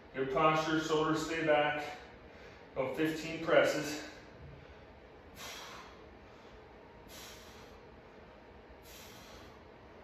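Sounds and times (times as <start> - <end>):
man exhaling hard: 4.4 - 7.8, 8.8 - 9.6.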